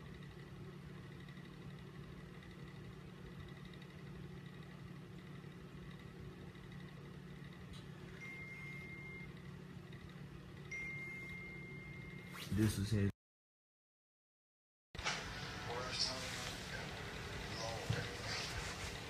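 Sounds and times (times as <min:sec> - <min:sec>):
low background hum: 0:00.0 - 0:13.2, 0:15.0 - 0:19.0.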